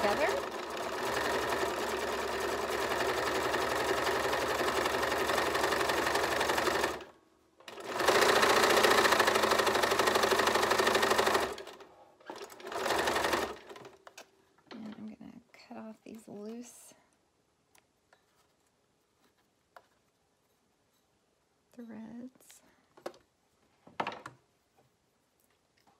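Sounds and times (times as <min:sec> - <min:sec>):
sewing machine stitching: 0:00.0 - 0:14.2.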